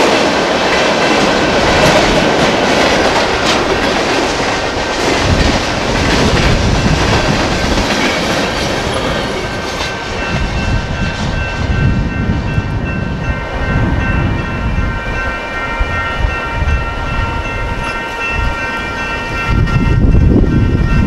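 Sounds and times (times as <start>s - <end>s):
crossing signal bells ringing: 0.0s - 21.0s
freight train rumble: 0.0s - 21.0s
train wheels clacking on rails: 0.0s - 21.0s.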